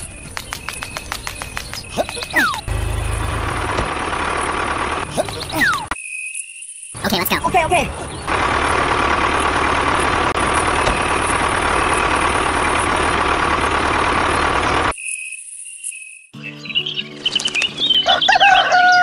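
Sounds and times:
tractor engine running: 0.0 - 5.9, 8.0 - 14.9.

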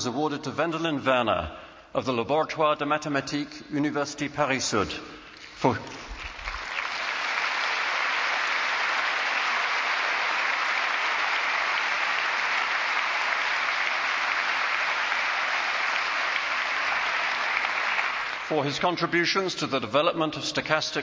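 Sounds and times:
large audience applauding: 5.6 - 18.7.

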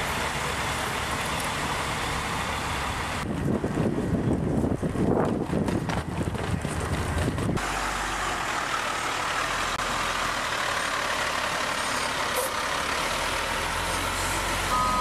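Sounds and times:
truck engine running: 0.0 - 15.0.

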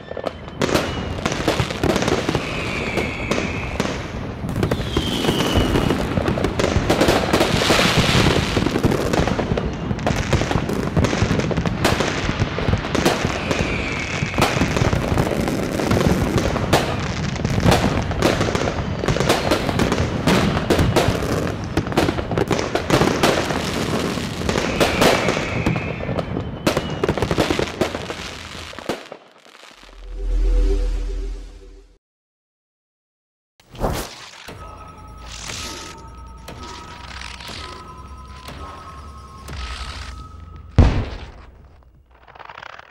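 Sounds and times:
firework whistle falling in pitch: 0.0 - 6.7, 13.1 - 15.1, 24.4 - 27.3, 34.5 - 41.8
fireworks crackling and banging: 0.0 - 30.0, 35.3 - 42.9.

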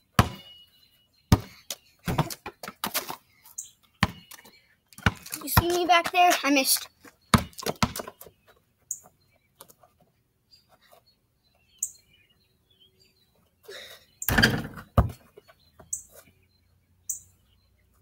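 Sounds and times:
high bird chirps: 0.2 - 2.3, 3.4 - 5.9, 10.5 - 14.4, 15.1 - 18.0.

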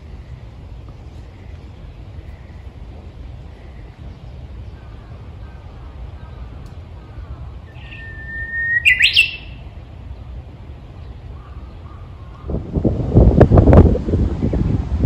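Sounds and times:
bird singing: 3.5 - 10.4, 11.0 - 12.6.

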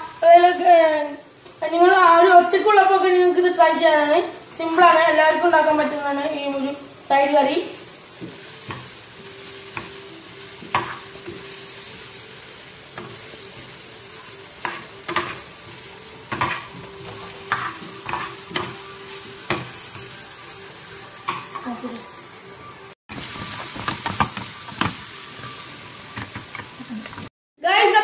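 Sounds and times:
vegetables sizzling in hot oil: 0.0 - 28.0
spoon scraping and clicking on pan: 17.5 - 18.8.

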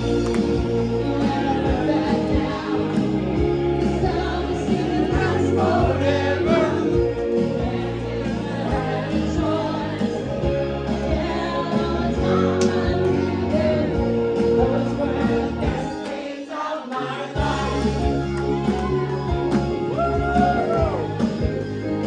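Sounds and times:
rock band playing: 0.0 - 16.0, 17.4 - 22.0
amplified singing: 0.1 - 21.0.

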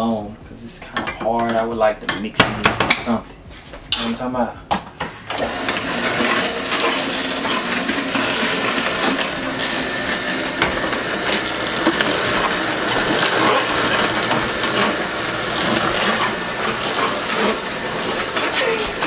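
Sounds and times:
juicer grinding vegetables: 5.3 - 19.0.

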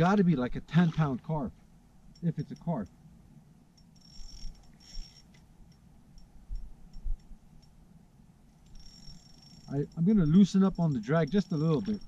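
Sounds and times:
fishing reel ticking: 3.8 - 6.3, 8.6 - 12.0.

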